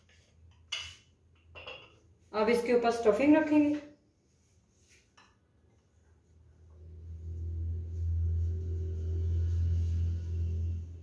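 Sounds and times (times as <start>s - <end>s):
low steady hum: 5.7s - 11.0s.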